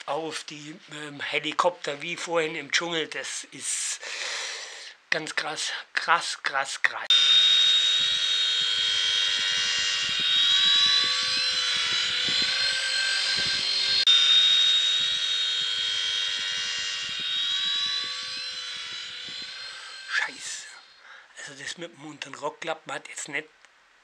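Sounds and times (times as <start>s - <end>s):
toy helicopter motors whining: 7.1s - 21.3s.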